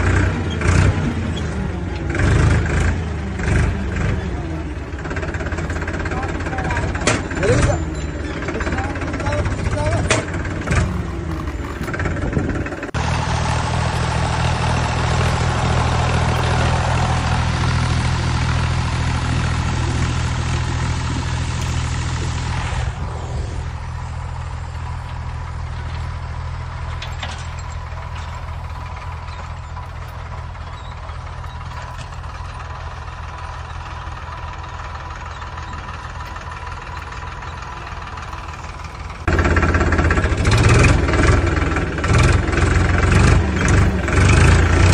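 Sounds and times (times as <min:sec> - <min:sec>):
engine idling: 0:00.0 - 0:44.9.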